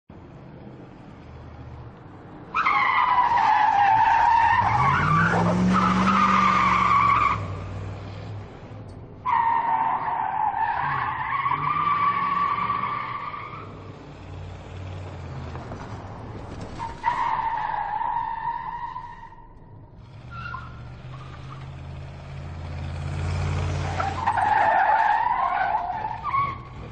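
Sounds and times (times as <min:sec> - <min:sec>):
car engine revving: 0:03.9 - 0:08.8, 0:20.0 - 0:26.9
tyres squealing: 0:23.7 - 0:26.9.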